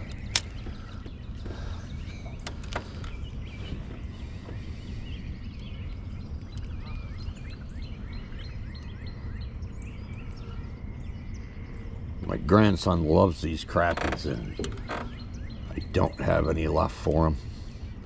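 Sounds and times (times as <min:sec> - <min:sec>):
sharp clicks: 0:00.0 - 0:00.8
small birds chirping: 0:00.0 - 0:18.0
steady low rumble: 0:00.0 - 0:18.0.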